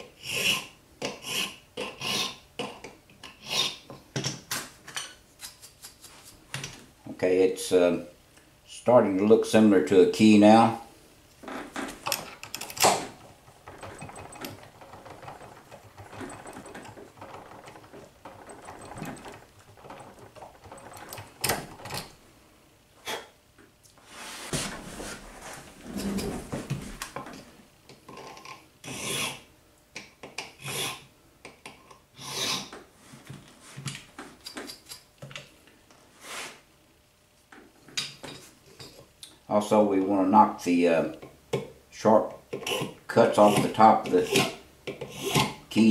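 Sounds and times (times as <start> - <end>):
file scraping metal key: 0.2 - 2.4, 42.6 - 45.6
sharp knocks and clicks: 11.5 - 22.1.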